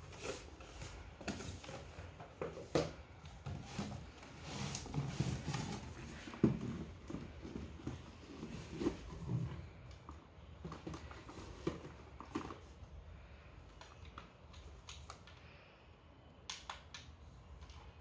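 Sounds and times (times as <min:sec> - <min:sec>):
cardboard box rustling and scraping: 0:00.0 - 0:09.7.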